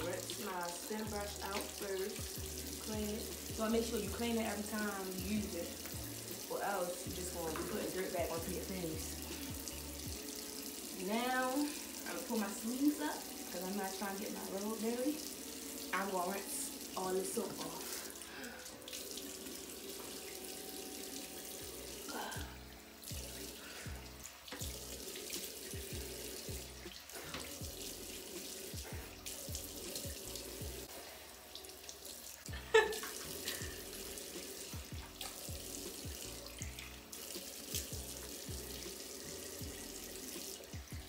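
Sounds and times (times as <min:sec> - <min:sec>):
tap running into sink: 0:01.1 - 0:02.2, 0:07.4 - 0:08.5, 0:24.4 - 0:26.6
background music with beat: 0:32.5 - 0:41.0.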